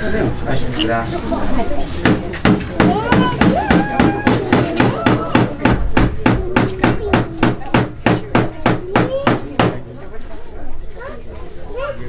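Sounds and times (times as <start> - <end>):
hammer striking: 2.0 - 9.8.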